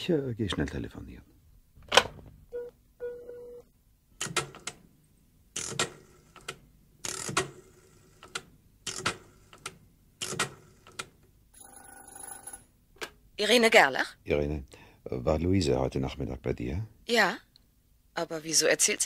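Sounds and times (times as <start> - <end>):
telephone ringing tone: 2.5 - 3.7, 11.5 - 12.7.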